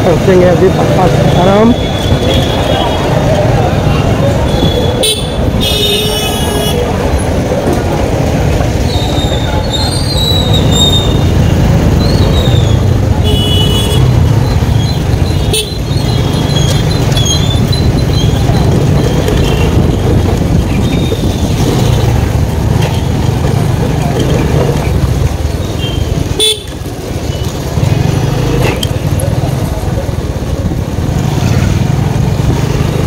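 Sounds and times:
road rumble: 0:00.0 - 0:33.0
wind on microphone: 0:17.4 - 0:23.2.

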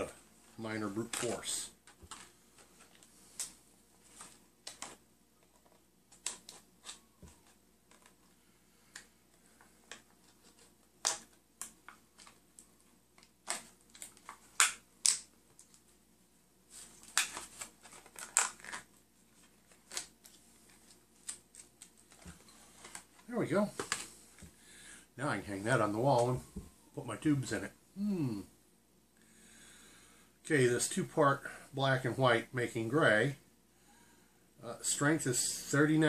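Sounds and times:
stiff plastic packaging crackling: 0:17.0 - 0:23.1.

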